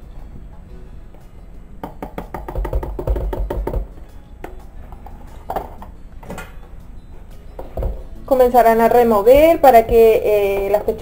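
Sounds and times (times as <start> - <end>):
knocks: 1.8 - 4.6.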